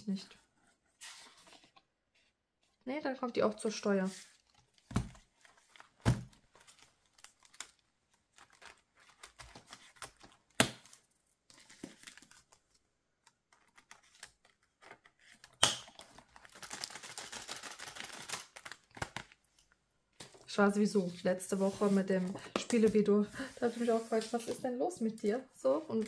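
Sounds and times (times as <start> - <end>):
plastic page sleeves rustling: 3.7 - 19.6, 20.2 - 25.0.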